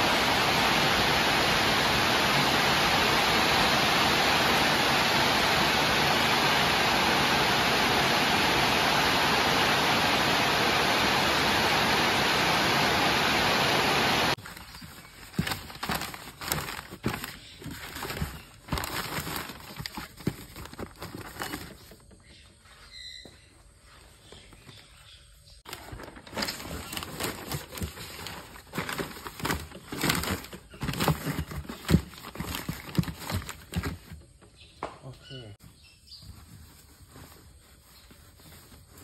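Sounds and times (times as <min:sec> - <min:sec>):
steady rushing noise: 0:00.0 - 0:14.4
newspaper and cardboard rustling: 0:00.0 - 0:34.4, 0:35.7 - 0:39.0.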